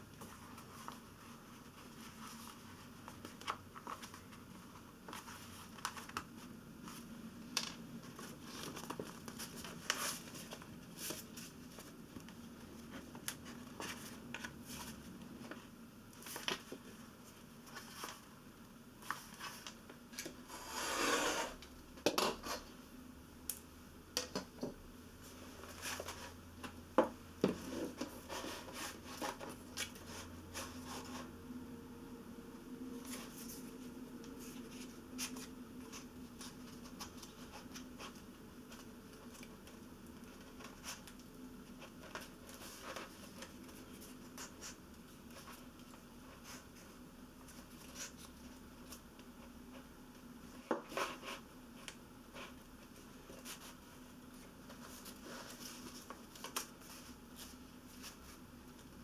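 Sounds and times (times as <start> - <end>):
pages rustling: 0.2 - 18.3, 33.0 - 49.8, 50.8 - 59.0.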